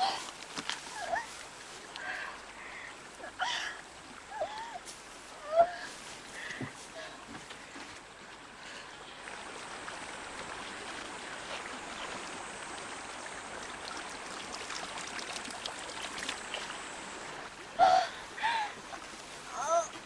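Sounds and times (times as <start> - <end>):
water trickling: 0.0 - 20.0
hands scooping water: 13.7 - 16.8.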